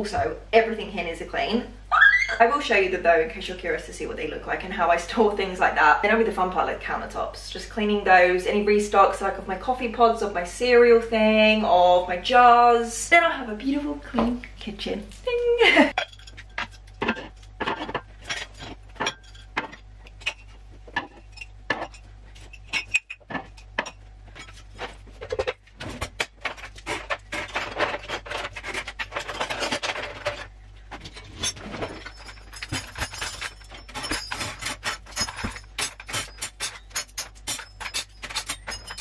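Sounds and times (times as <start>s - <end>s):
cutlery clattering into a drawer: 25.2s - 39.0s.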